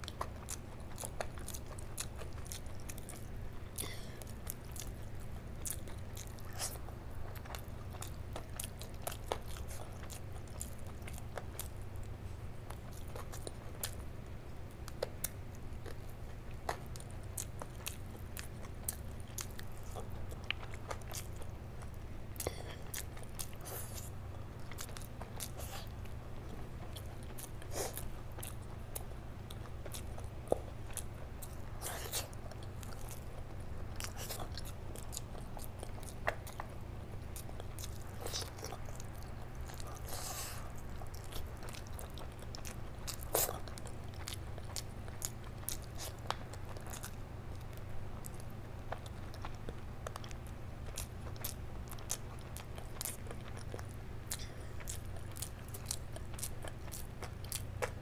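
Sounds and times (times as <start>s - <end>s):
chewing and biting chicken: 0.0s - 58.0s
steady low hum: 0.0s - 58.0s.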